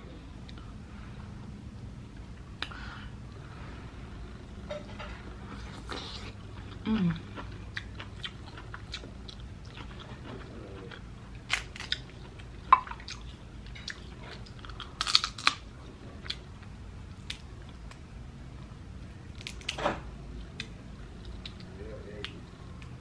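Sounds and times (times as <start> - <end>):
person chewing with wet smacking: 5.5 - 15.5.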